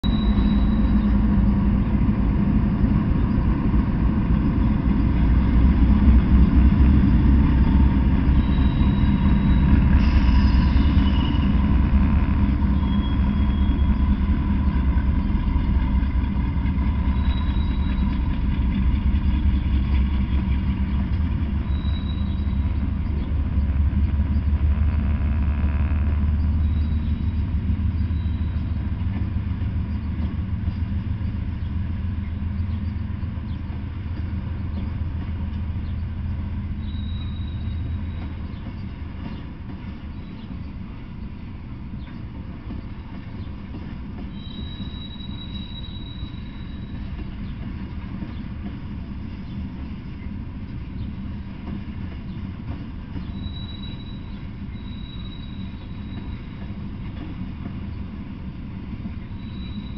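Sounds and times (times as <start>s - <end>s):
high wheel squeals: 0.0s - 1.3s, 7.4s - 18.4s, 21.5s - 29.0s, 36.7s - 38.4s, 44.3s - 47.1s, 53.1s - 56.8s, 59.2s - 59.9s
locomotive engines running: 0.0s - 59.9s
steel wheels rumbling on rail: 0.0s - 59.9s.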